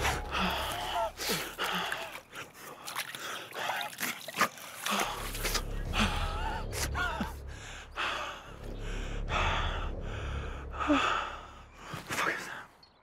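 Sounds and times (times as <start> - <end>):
low rumble: 5.1 - 11.9.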